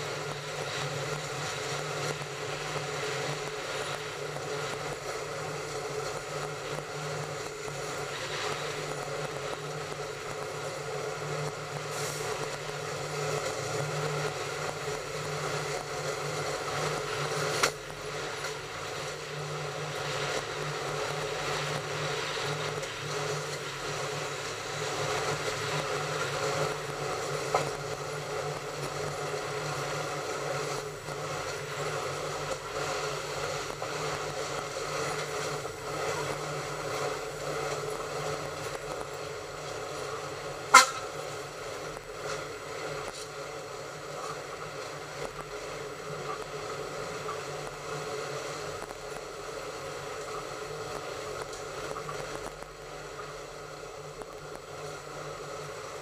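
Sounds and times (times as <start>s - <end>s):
train rumbling along track: 0.0s - 56.0s.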